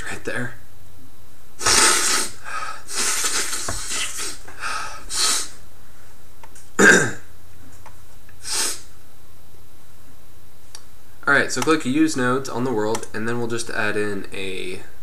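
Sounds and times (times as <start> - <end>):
person breathing close to microphone: 1.6 - 5.6.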